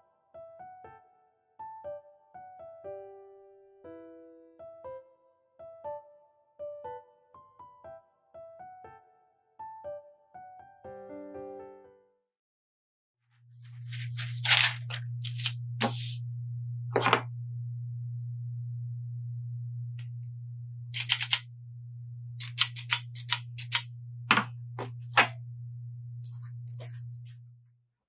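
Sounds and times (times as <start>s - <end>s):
steady low hum: 13.5s - 27.6s
parchment paper rustling: 13.6s - 16.2s, 26.2s - 27.5s
cookie scoop lever clicking: 21.0s - 21.4s, 22.4s - 23.9s.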